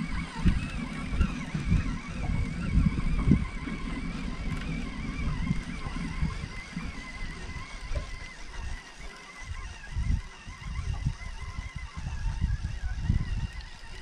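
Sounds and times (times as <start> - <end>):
outboard motor whine: 0.0 - 14.0
wind buffeting microphone: 0.0 - 14.0.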